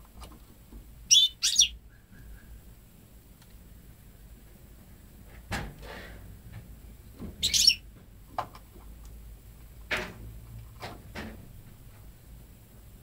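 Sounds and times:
knocks and clicks in cage: 8.0 - 9.2, 9.8 - 11.5.

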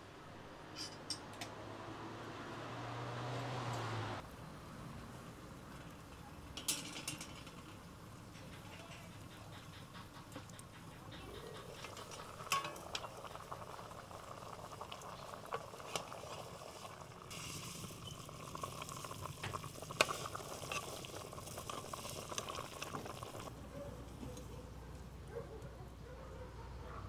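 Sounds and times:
broth bubbling in a pot: 7.4 - 23.6
ladle clinking against a pot: 11.6 - 13.2.

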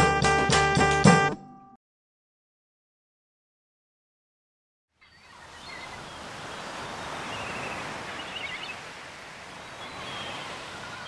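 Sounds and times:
faint high bird chirps: 5.0 - 8.8, 9.6 - 11.0
surf washing on beach: 5.3 - 11.0.

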